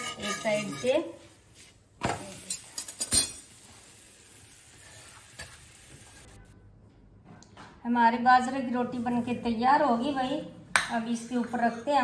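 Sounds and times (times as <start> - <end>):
metal spatula scraping griddle: 0.0 - 1.2.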